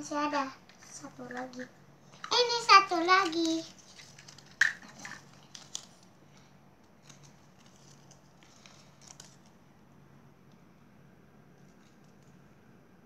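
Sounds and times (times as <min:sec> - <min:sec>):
steady low hum: 0:00.0 - 0:13.0
plastic wrappers rustling: 0:00.7 - 0:09.6.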